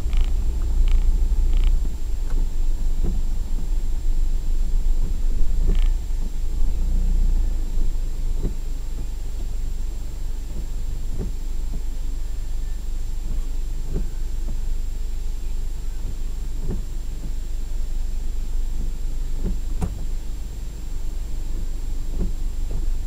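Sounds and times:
vehicle engine and tyres rumbling: 0:00.0 - 0:23.0.

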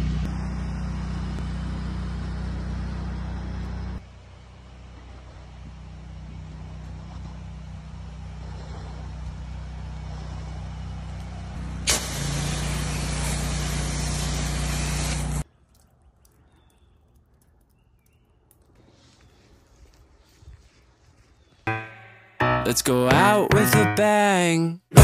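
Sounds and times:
pressure washer engine droning: 0:00.0 - 0:15.4
water spraying onto siding: 0:11.6 - 0:15.8.

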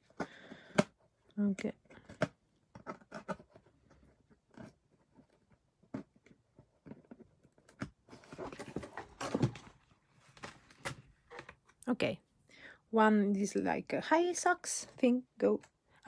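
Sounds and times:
cardboard packaging rustling: 0:06.9 - 0:11.5.

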